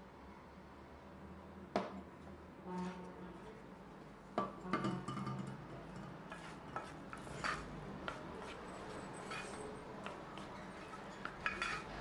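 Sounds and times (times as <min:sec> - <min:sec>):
wooden spoon scraping pot: 0:06.0 - 0:12.0.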